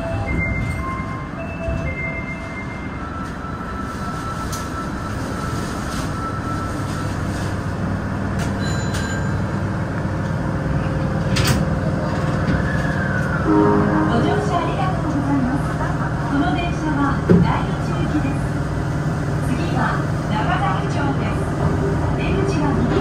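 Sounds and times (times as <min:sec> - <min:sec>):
subway train rumble and hum: 0:00.0 - 0:23.0
low hum: 0:13.4 - 0:16.4.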